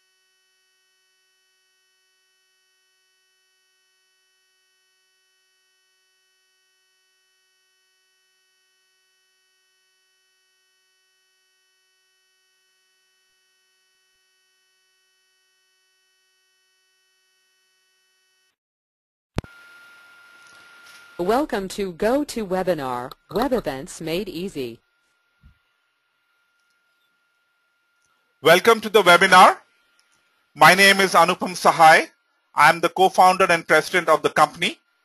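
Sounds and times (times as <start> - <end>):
faint electrical hum: 19.4 - 35.0
steady high tone: 20.5 - 24.8, 28.4 - 29.6, 30.6 - 34.4
click: 26.6 - 27.1.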